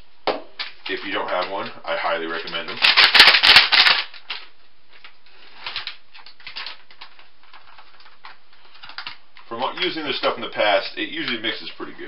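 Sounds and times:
plastic foil packet crinkling: 0:00.8 - 0:10.3.

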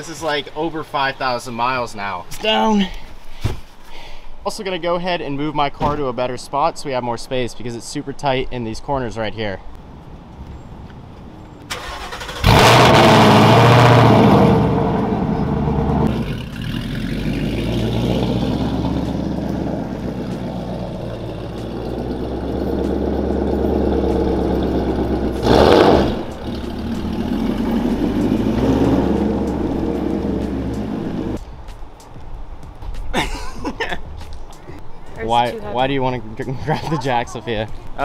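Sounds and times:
car pulling away: 0:10.0 - 0:31.4
car engine starting and idling: 0:11.6 - 0:31.4.

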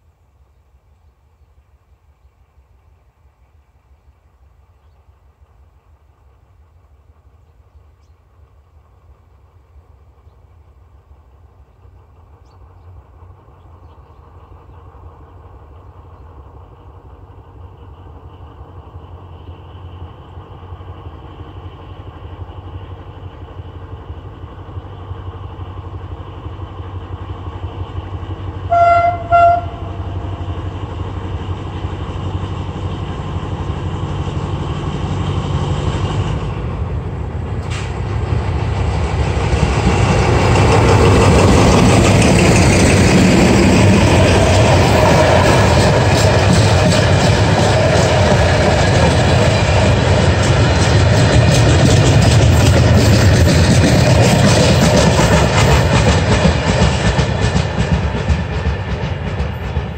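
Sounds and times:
locomotive engine rumble: 0:00.0 - 0:59.9
train wagons running past: 0:00.7 - 0:59.9
train horn blasts: 0:28.7 - 0:30.4.

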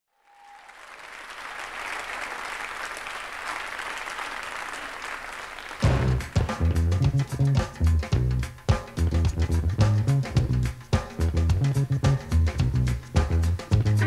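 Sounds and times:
audience applause and cheering: 0:00.1 - 0:06.8
drum hits: 0:05.8 - 0:14.0
heavy bass guitar notes: 0:05.8 - 0:14.0.

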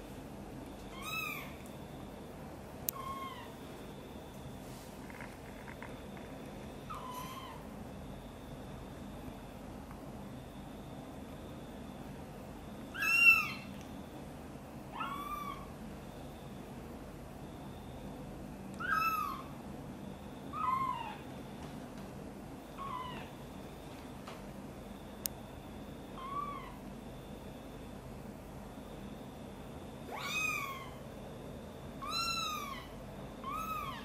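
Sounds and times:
kitten mewing: 0:26.2 - 0:26.8.

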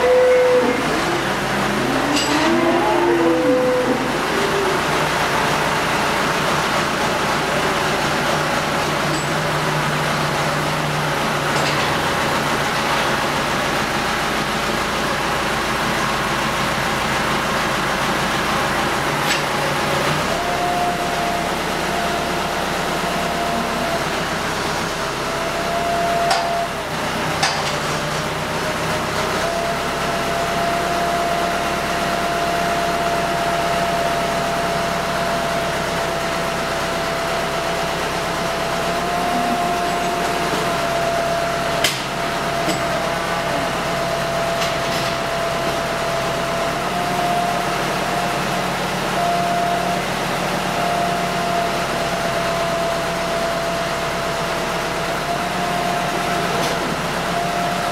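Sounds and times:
tractor engine running: 0:03.6 - 0:57.9
bale cutter working: 0:35.9 - 0:47.2.

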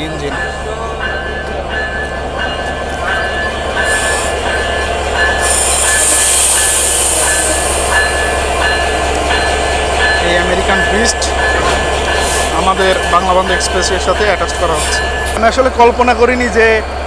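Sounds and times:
diesel locomotive engine rumble: 0:00.0 - 0:17.0
loud hissing: 0:05.4 - 0:08.6.

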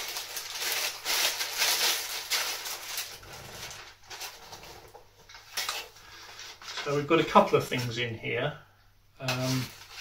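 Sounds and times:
plastic bag crinkling: 0:00.0 - 0:07.1.

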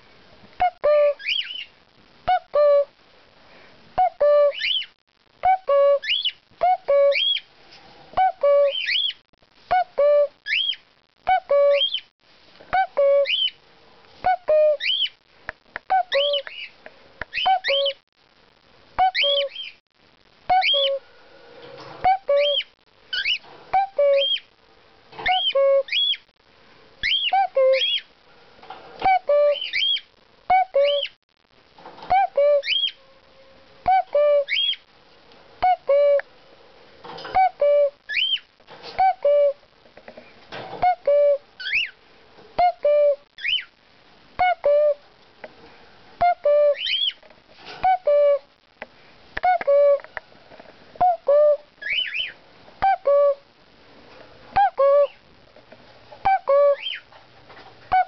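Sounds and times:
person imitating cuckoo call: 0:00.6 - 0:01.2, 0:02.3 - 0:02.9, 0:05.4 - 0:07.2, 0:09.7 - 0:10.4, 0:23.7 - 0:24.3, 0:27.2 - 0:27.9, 0:29.0 - 0:29.6, 0:32.1 - 0:32.7, 0:33.8 - 0:34.5, 0:35.6 - 0:36.3, 0:37.3 - 0:38.0, 0:39.0 - 0:39.6, 0:40.8 - 0:41.4, 0:42.6 - 0:43.2, 0:44.4 - 0:45.0, 0:47.8 - 0:48.5, 0:49.4 - 0:50.1, 0:51.0 - 0:51.7, 0:52.8 - 0:53.5, 0:54.6 - 0:55.2, 0:56.2 - 0:56.8
cockatiels chirping and whistling: 0:00.8 - 0:01.7, 0:04.0 - 0:04.9, 0:05.5 - 0:07.5, 0:08.2 - 0:10.8, 0:11.4 - 0:12.0, 0:12.8 - 0:13.6, 0:14.3 - 0:15.2, 0:15.9 - 0:18.0, 0:19.0 - 0:19.8, 0:20.5 - 0:21.0, 0:22.0 - 0:24.5, 0:25.2 - 0:26.2, 0:27.0 - 0:28.1, 0:29.0 - 0:31.1, 0:32.1 - 0:33.0, 0:33.8 - 0:34.8, 0:37.2 - 0:38.4, 0:40.8 - 0:42.0, 0:42.6 - 0:43.7, 0:46.2 - 0:47.2, 0:51.0 - 0:53.4, 0:54.6 - 0:55.2, 0:56.3 - 0:57.1.

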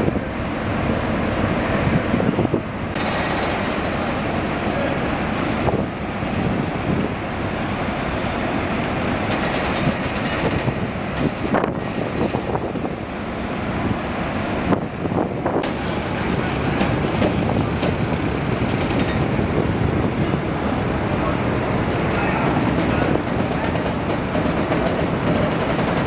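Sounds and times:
steady mechanical rumble: 0:00.0 - 0:26.0
short knocks and clanks: 0:03.0 - 0:04.1, 0:09.3 - 0:12.6, 0:15.6 - 0:20.0, 0:22.5 - 0:26.0.

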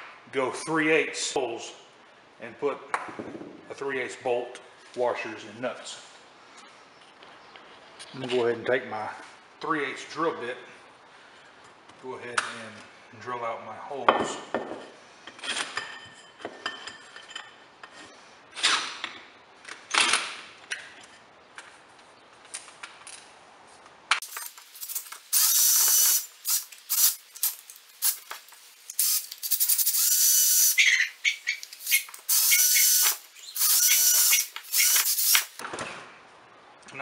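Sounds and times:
power drill drilling aluminium: 0:24.2 - 0:27.6, 0:29.0 - 0:35.6.

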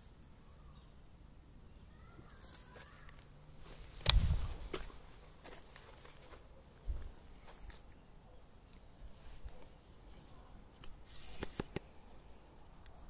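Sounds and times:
faint high chirps: 0:00.0 - 0:03.8
rustle with sharp clicks: 0:10.7 - 0:12.0.

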